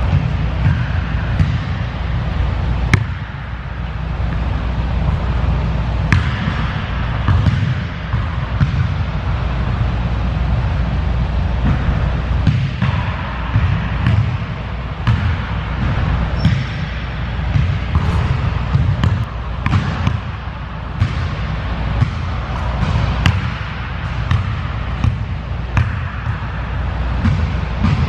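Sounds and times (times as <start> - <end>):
basketball bouncing on hardwood floor: 0.0 - 1.8, 6.1 - 9.0, 12.4 - 14.4, 17.5 - 20.4, 21.0 - 21.4, 22.0 - 26.5
low rumble: 17.4 - 28.0.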